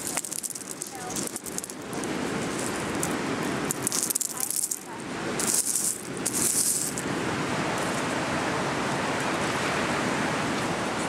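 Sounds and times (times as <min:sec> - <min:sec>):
seashells clattering: 0:00.0 - 0:07.1
steady rushing noise: 0:00.0 - 0:11.0.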